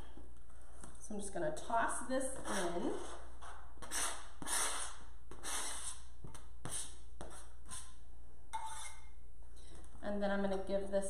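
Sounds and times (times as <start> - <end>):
knife scraping plastic cutting mat: 2.4 - 6.0.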